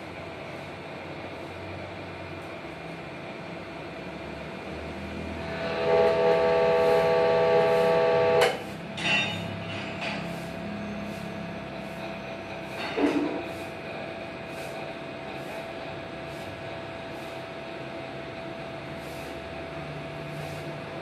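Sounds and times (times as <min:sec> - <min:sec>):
loud hydraulic whine: 0:03.5 - 0:15.8.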